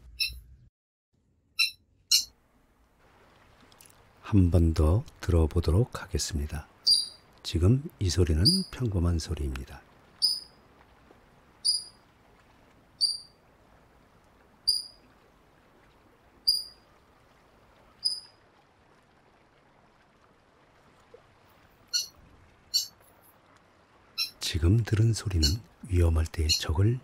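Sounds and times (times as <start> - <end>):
coot alarm calls: 21.9 - 22.1, 22.7 - 22.9, 24.2 - 24.4, 25.4 - 25.6.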